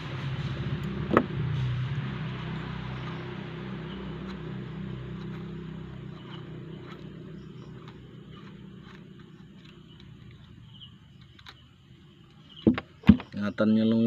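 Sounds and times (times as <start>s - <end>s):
low hum: 0.0s - 13.0s
small tool clicking and scraping: 4.0s - 12.6s.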